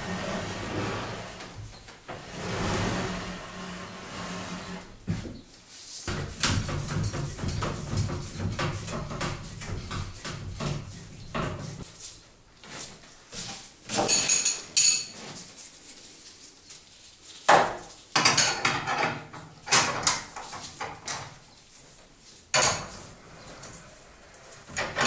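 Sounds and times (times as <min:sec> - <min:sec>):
metal rods clinking and rattling: 0:14.0 - 0:15.2.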